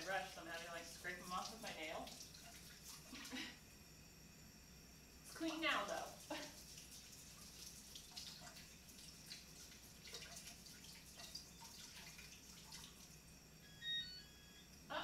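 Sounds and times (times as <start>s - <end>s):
water running into sink: 0.0s - 3.5s, 5.2s - 13.4s
kitchen timer beep: 13.6s - 14.7s.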